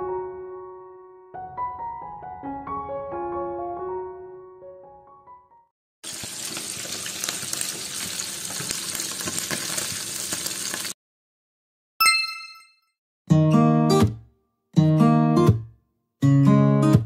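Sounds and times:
food sizzling in hot oil: 6.0 - 11.0
short bright chime: 12.0 - 12.9.

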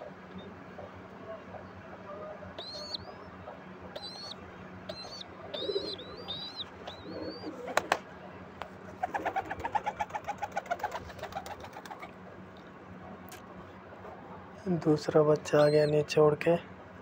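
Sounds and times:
pigeon squabs begging squeaks: 2.6 - 7.9, 15.4 - 16.0
flapping wings: 7.5 - 8.1, 9.0 - 12.1.

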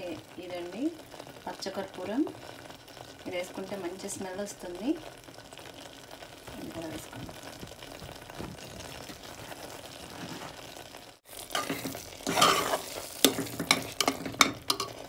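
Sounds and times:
food sizzling in a pot: 0.0 - 15.0
spoon stirring and scraping: 11.4 - 15.0
spoon knocking against pot: 13.2 - 15.0.

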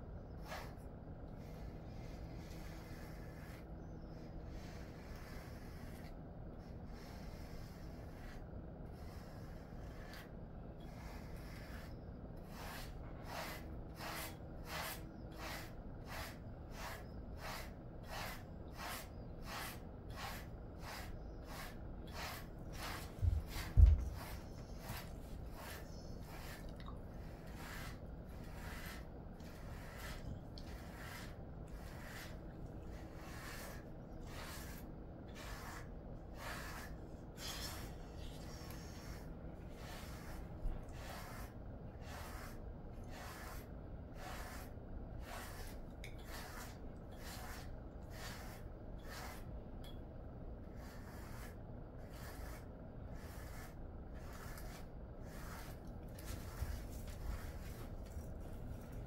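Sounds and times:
brush raking through dog fur: 0.4 - 0.8, 1.4 - 49.5, 50.7 - 59.0.

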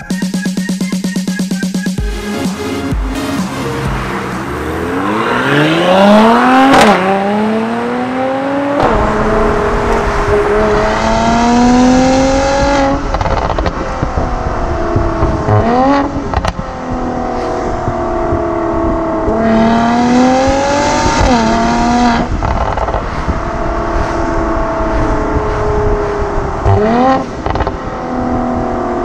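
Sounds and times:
car engine accelerating: 0.0 - 29.0
exhaust crack: 8.7 - 29.0.

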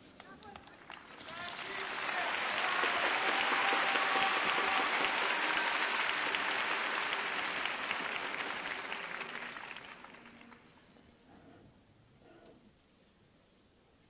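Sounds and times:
audience applauding: 0.4 - 10.7.

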